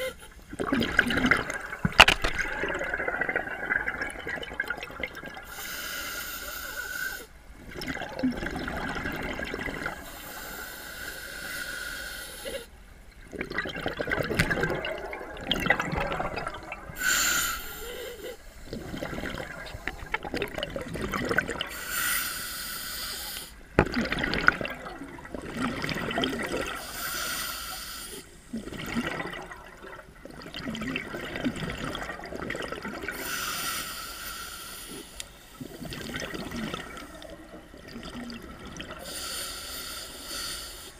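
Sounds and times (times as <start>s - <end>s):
exhaled bubbling: 0.0s - 5.7s, 7.5s - 10.4s, 13.2s - 21.9s, 23.7s - 26.9s, 28.5s - 33.4s, 35.0s - 39.4s
regulator inhale hiss: 5.5s - 7.4s, 10.0s - 12.8s, 17.0s - 18.8s, 21.7s - 23.7s, 26.8s - 28.5s, 33.1s - 35.6s, 39.0s - 40.9s.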